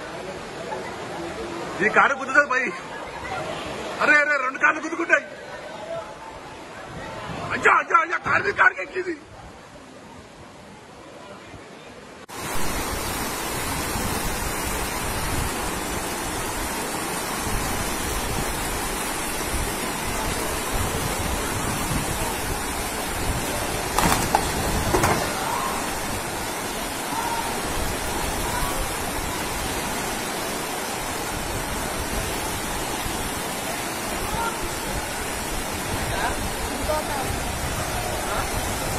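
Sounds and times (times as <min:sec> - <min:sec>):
floodwater rushing down a street: 0:00.0 - 0:38.9
brief knocks: 0:24.0 - 0:25.4.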